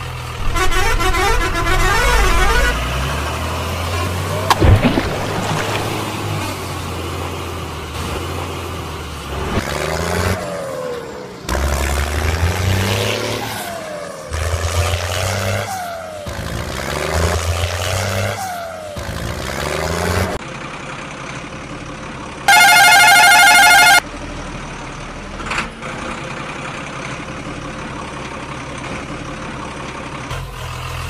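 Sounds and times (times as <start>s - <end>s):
truck engine sound effect: 0.0s - 20.7s, 21.7s - 27.8s
sharp bang: 0.4s - 3.2s, 4.5s - 6.9s.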